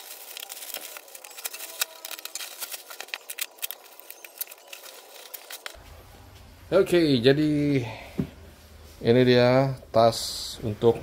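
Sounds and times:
plastic crinkling and rustling: 0:00.0 - 0:05.8
scissors snipping plastic: 0:00.0 - 0:05.8.

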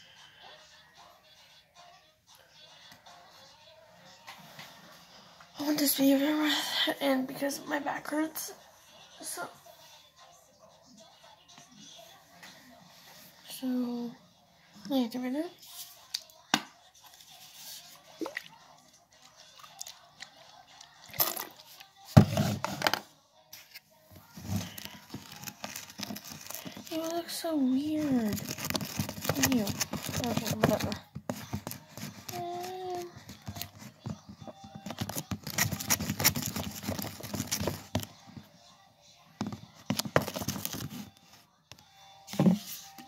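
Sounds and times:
spoon stirring sticky slime: 0:24.4 - 0:38.0.

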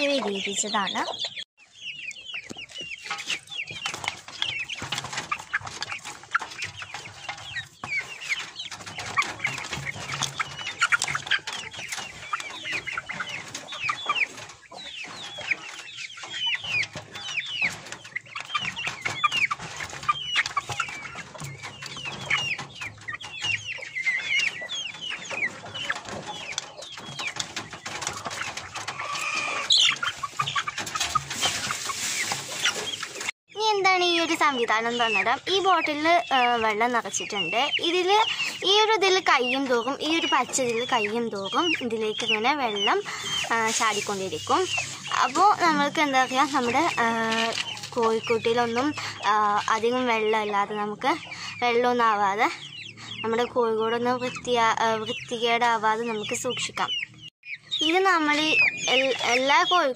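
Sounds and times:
chickens clucking: 0:00.0 - 0:59.9
chicks peeping: 0:00.0 - 0:59.9.

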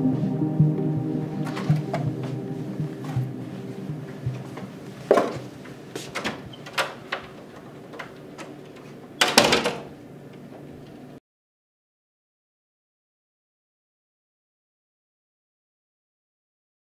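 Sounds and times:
door banging shut: 0:06.1 - 0:07.4, 0:09.2 - 0:09.9.

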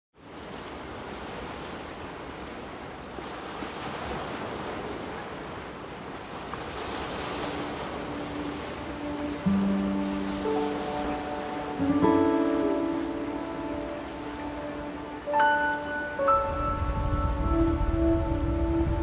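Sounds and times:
waves breaking: 0:00.2 - 0:19.0
wind on microphone: 0:13.1 - 0:19.0.

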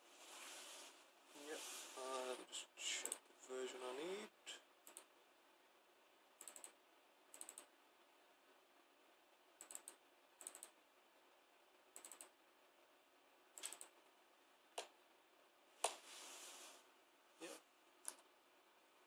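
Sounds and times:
laptop keys clicking: 0:06.4 - 0:06.8, 0:07.4 - 0:07.7, 0:09.6 - 0:10.8, 0:12.0 - 0:12.3, 0:13.6 - 0:14.0.

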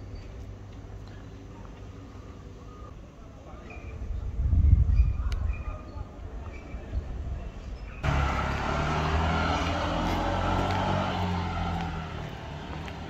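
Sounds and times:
low street rumble: 0:00.0 - 0:13.0
vehicle engine humming: 0:08.0 - 0:13.0.

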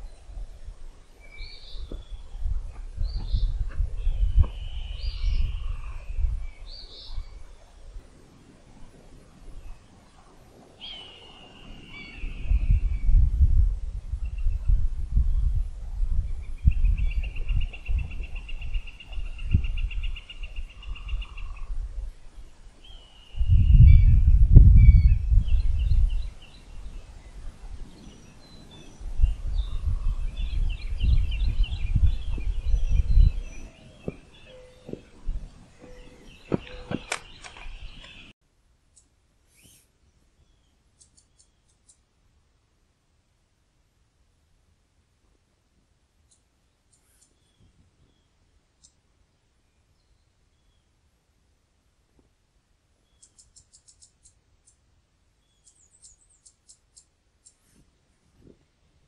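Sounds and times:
bird calls: 0:01.2 - 0:07.9, 0:09.6 - 0:13.2, 0:16.4 - 0:21.8, 0:22.4 - 0:38.3, 0:53.0 - 0:54.8
faint clicks: 0:41.0 - 0:42.0, 0:46.2 - 0:47.4, 0:53.2 - 0:54.8.

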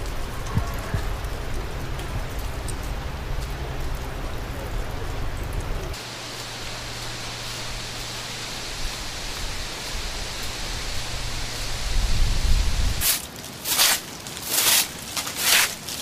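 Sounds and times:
steady rushing hiss: 0:00.0 - 0:16.0
broom sweeping leaves: 0:05.9 - 0:16.0.

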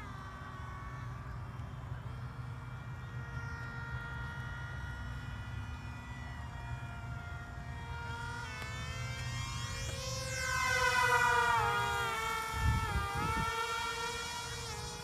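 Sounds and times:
model jet motor whining: 0:00.0 - 0:15.0
wind rumble on microphone: 0:10.6 - 0:15.0.

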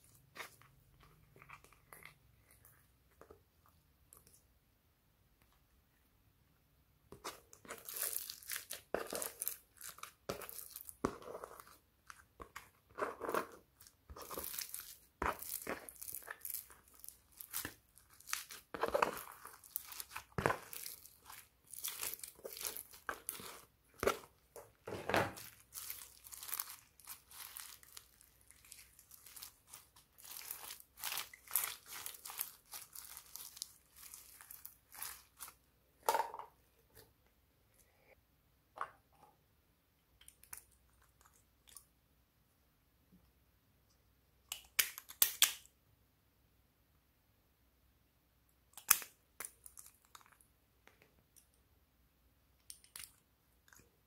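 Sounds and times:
slime crackling and squishing: 0:07.1 - 0:35.6.

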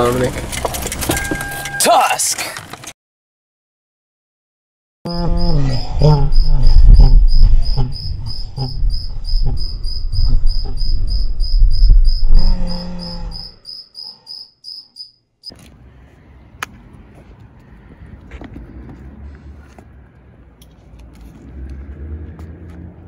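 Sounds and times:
loud low rumble: 0:05.1 - 0:13.5.

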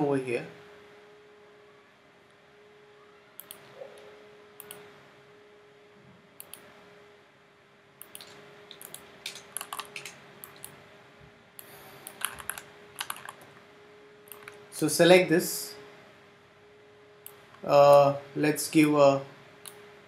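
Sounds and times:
faint steady hum: 0:00.0 - 0:20.0
mouse and keyboard clicks: 0:08.0 - 0:10.8, 0:12.0 - 0:13.4.

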